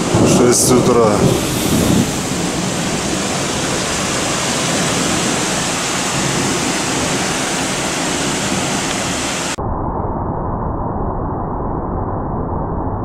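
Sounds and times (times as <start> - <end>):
muffled low rumble: 0.0 - 4.0, 9.5 - 13.0
heavy rain pouring: 0.0 - 9.6.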